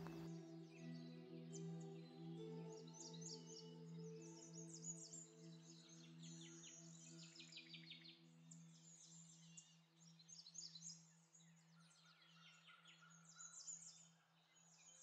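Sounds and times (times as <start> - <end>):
low drone music: 0.0 - 7.2.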